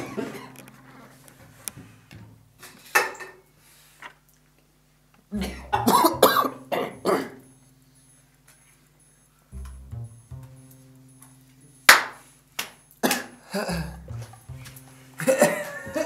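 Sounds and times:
man coughing: 5.4s - 7.4s.

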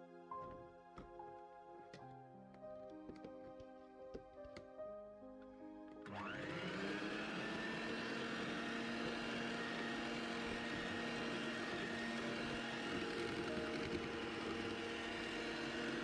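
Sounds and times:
electric hand mixer whining: 6.0s - 16.0s.

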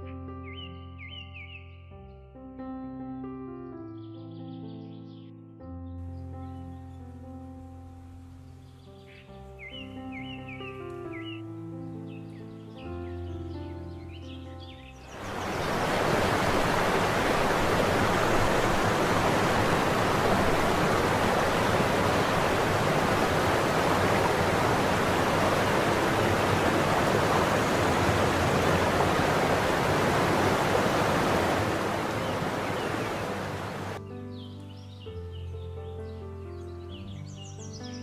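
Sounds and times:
waterfall rushing: 15.1s - 34.0s.

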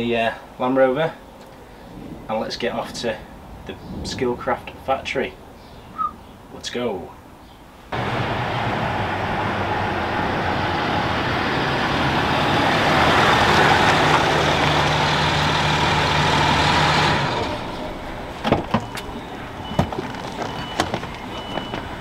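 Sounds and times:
car engine running: 8.0s - 19.0s
car door clicks and knocks: 18.4s - 19.1s.

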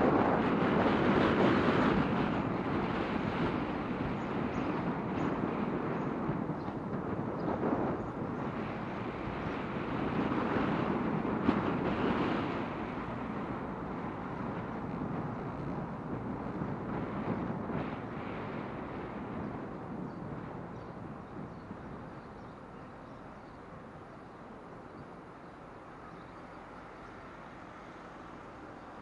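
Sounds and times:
wind on microphone: 0.0s - 26.3s
moving vehicle: 0.0s - 29.0s.

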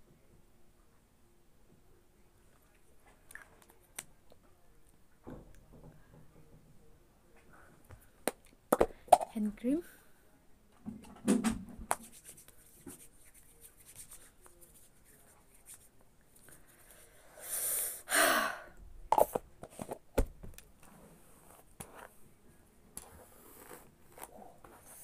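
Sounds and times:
hands rubbing in cream: 11.9s - 15.9s.

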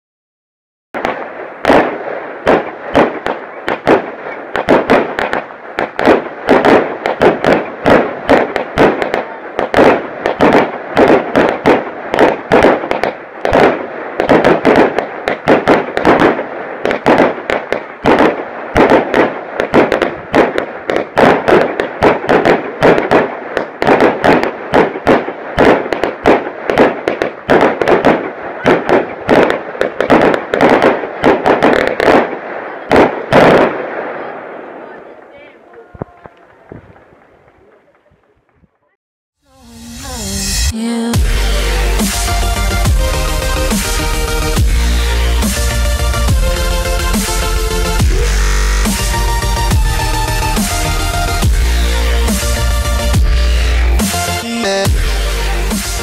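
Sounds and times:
firework cracks and bangs: 1.0s - 38.7s, 40.0s - 56.0s.

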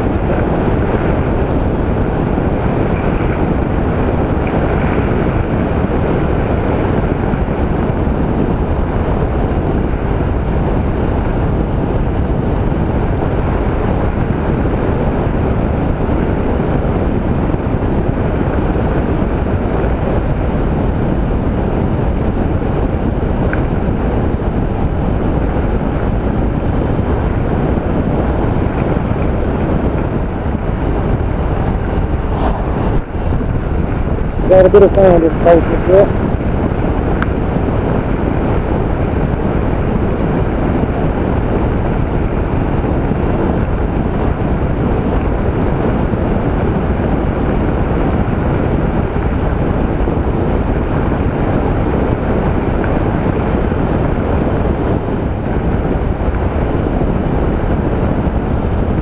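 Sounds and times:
road noise: 0.0s - 12.7s, 18.0s - 57.2s
motorcycle running: 0.0s - 16.7s
wind rush on microphone: 0.0s - 59.0s.

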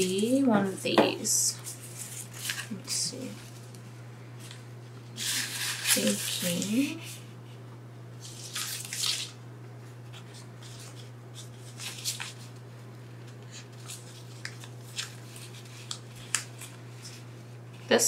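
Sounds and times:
steady low hum: 0.0s - 18.0s
plastic tape rustling: 1.6s - 3.8s, 4.4s - 7.2s, 8.2s - 9.4s, 10.1s - 12.6s, 13.2s - 17.9s.

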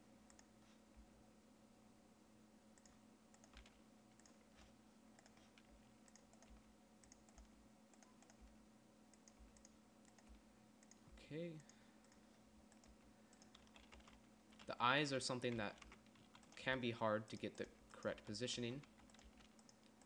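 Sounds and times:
low steady hum: 0.0s - 20.0s
computer keyboard clicks: 2.8s - 4.4s, 5.2s - 8.5s, 12.0s - 14.7s, 17.4s - 20.0s
mouse clicks: 9.1s - 11.0s.

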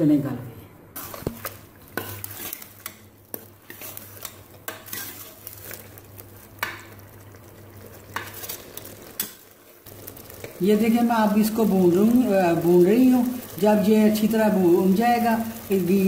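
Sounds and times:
faint sizzle: 0.0s - 16.0s
spoon scraping pot: 1.0s - 9.4s.

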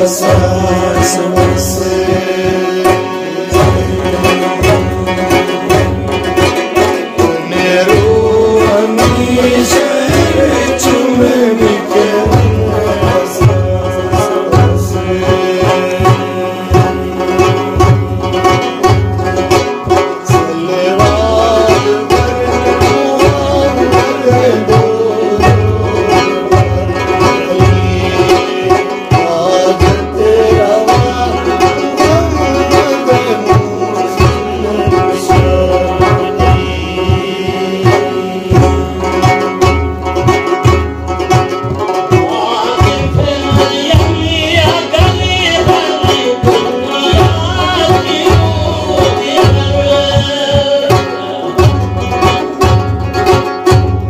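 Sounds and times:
man singing: 0.0s - 40.6s, 41.8s - 52.8s
plucked lute: 0.0s - 54.0s
steady low beat: 0.0s - 54.0s.

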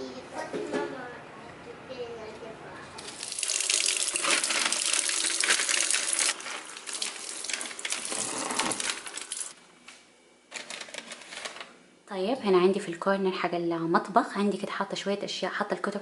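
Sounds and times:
bag crinkling: 3.1s - 9.6s, 10.5s - 11.7s.

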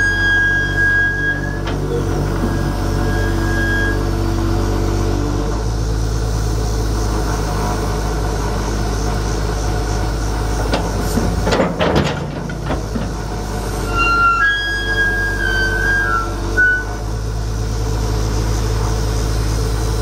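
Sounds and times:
metallic clanking and squeaking: 0.0s - 4.1s, 10.7s - 17.0s
diesel engine running: 0.0s - 20.0s
hydraulics working: 0.0s - 20.0s.

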